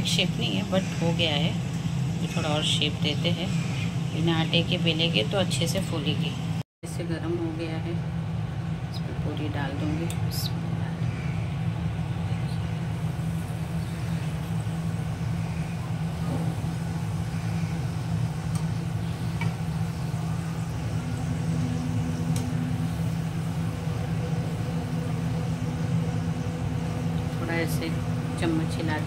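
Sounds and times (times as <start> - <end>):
faint steady hum: 0.0 - 29.0
low mechanical drone: 0.0 - 29.0
food deep-frying in oil: 12.0 - 29.0.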